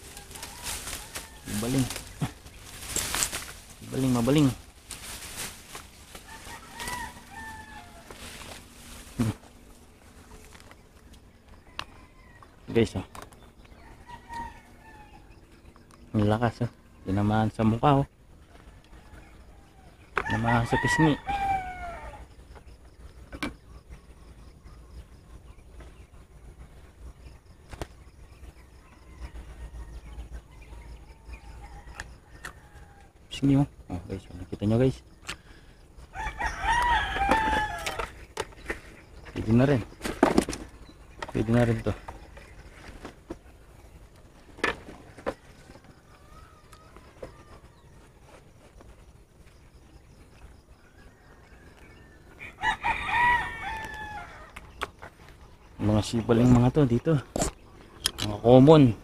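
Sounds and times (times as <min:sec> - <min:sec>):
rooster crowing: 0:00.0 - 0:02.4, 0:05.7 - 0:09.4, 0:11.5 - 0:12.8, 0:13.7 - 0:15.6, 0:18.5 - 0:22.4, 0:28.6 - 0:33.2, 0:35.6 - 0:38.3, 0:45.2 - 0:48.2, 0:50.6 - 0:54.6
distant birds calling: 0:00.0 - 0:59.0.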